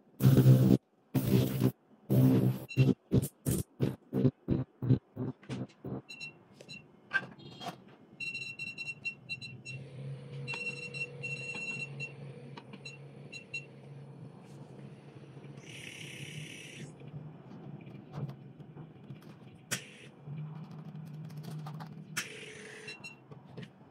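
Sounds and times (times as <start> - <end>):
steady low hum: 0.0 - 6.9, 9.3 - 22.9
steady mid tone: 0.2 - 6.2.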